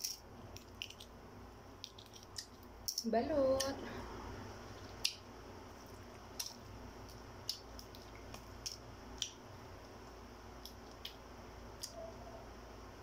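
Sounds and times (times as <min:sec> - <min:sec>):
eggshell crackling: 0:00.0 - 0:03.8, 0:04.5 - 0:12.1.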